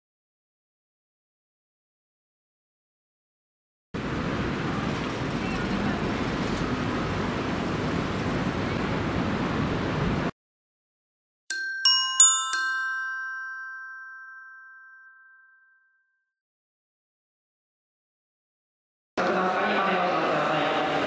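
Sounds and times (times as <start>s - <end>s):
four-note bell chime: 11.5s - 16.0s.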